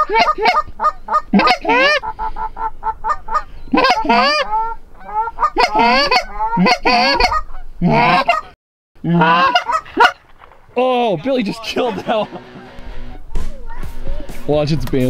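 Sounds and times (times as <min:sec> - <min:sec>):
geese honking and clucking: 0:00.0 - 0:13.9.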